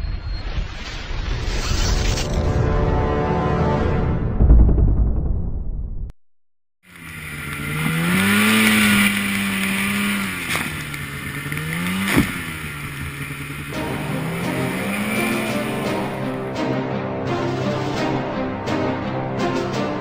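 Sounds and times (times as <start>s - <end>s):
rush of wind and snow: 6.9s - 16.4s
snowmobile engine revving: 6.9s - 16.8s.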